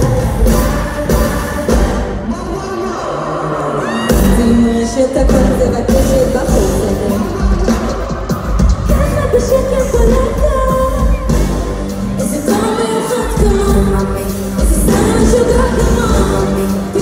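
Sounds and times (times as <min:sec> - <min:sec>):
woman singing over backing track: 0:03.6 - 0:17.0.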